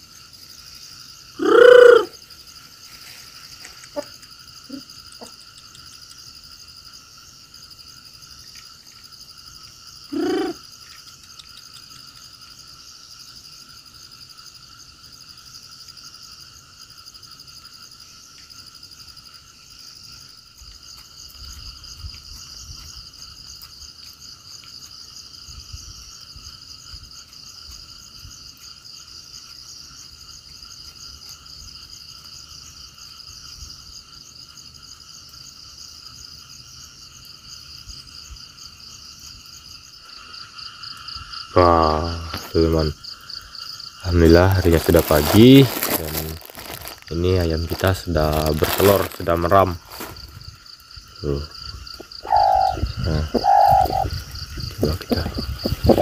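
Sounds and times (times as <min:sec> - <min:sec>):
insects and frogs chorus: 0:00.0 - 0:56.0
loud animal call: 0:01.4 - 0:02.2, 0:10.1 - 0:10.6, 0:52.0 - 0:56.0.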